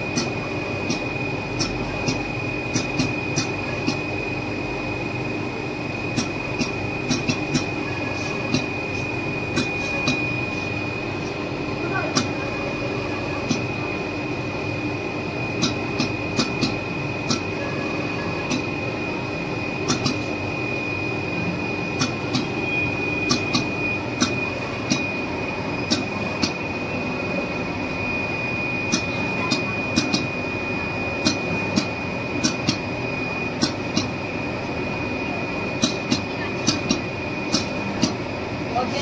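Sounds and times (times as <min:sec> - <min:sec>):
cutting machine humming and whining: 0:00.0 - 0:39.0
sharp machine clicks: 0:00.1 - 0:04.0, 0:06.1 - 0:07.8, 0:15.6 - 0:17.5, 0:19.8 - 0:20.3, 0:22.0 - 0:22.5, 0:23.2 - 0:25.1, 0:25.8 - 0:26.6, 0:28.9 - 0:30.3, 0:31.2 - 0:32.8, 0:35.8 - 0:38.2.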